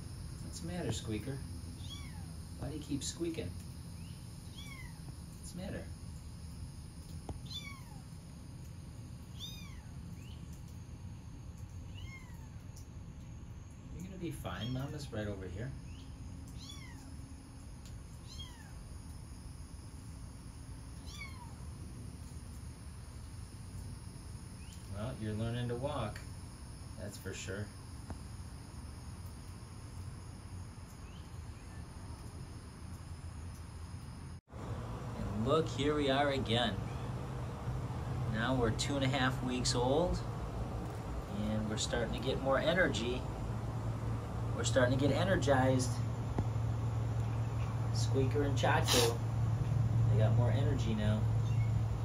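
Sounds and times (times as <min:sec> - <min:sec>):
kitten mewing: 0:01.8 - 0:02.3, 0:04.5 - 0:05.0, 0:09.4 - 0:09.9, 0:16.6 - 0:17.1, 0:18.2 - 0:18.8, 0:21.0 - 0:21.6, 0:48.8 - 0:49.2
low background rumble: 0:31.0 - 0:52.0.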